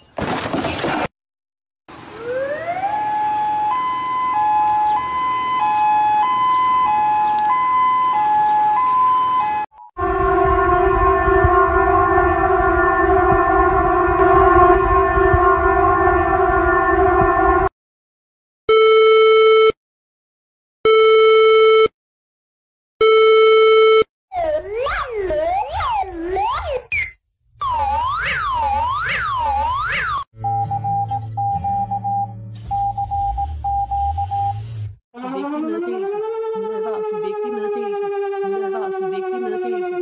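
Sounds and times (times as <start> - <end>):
alarm tone switching between pitches: 3.6 - 17.7, 18.7 - 19.8, 23.0 - 24.1, 27.6 - 34.7
short alarm beeps: 30.4 - 34.6.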